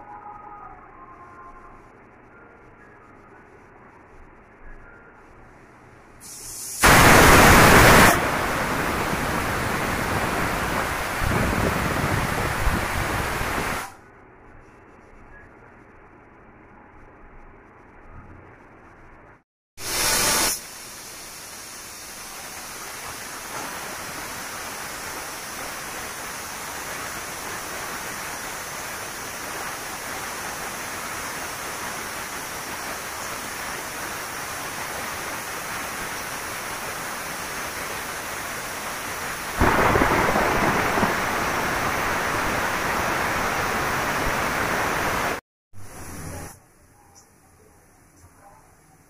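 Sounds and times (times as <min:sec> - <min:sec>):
pressure cooker steam hissing: 0:06.2 - 0:10.5, 0:19.8 - 0:39.4
loud steam blast: 0:06.2 - 0:13.9, 0:19.8 - 0:46.1.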